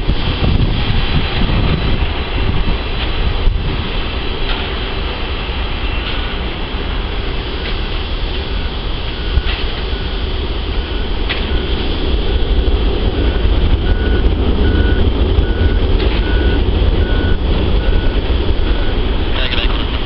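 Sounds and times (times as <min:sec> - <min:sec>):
jet engine noise: 0:00.0 - 0:20.0.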